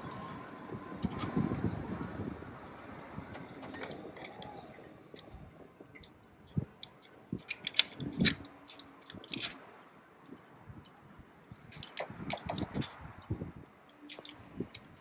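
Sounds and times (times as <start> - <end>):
small clicks and metallic taps: 3.6 - 9.6.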